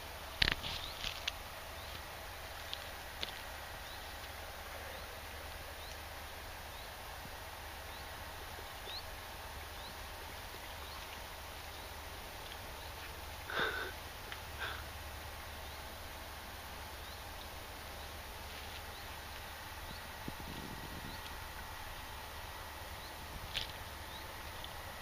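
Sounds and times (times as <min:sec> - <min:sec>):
steady hiss: 0:00.0 - 0:25.0
small bird chirping: 0:00.4 - 0:02.0, 0:07.8 - 0:10.1, 0:10.7 - 0:13.1, 0:16.8 - 0:21.4.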